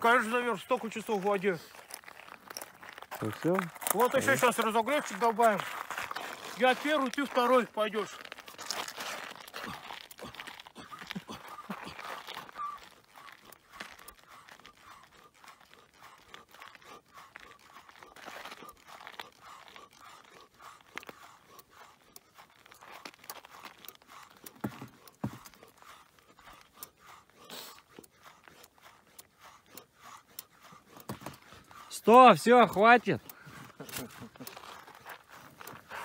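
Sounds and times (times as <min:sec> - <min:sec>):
snow crunching: 0:00.0 - 0:15.0.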